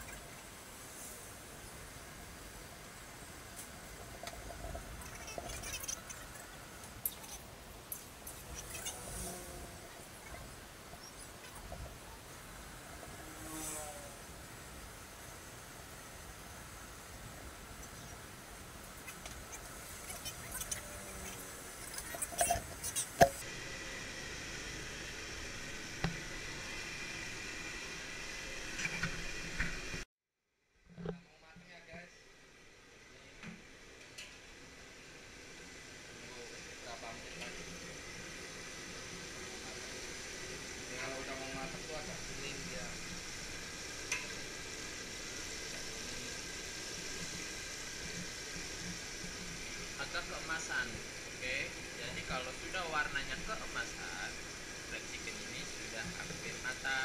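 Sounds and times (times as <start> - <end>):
chicken deep-frying in oil: 0.0 - 9.1, 33.9 - 57.0.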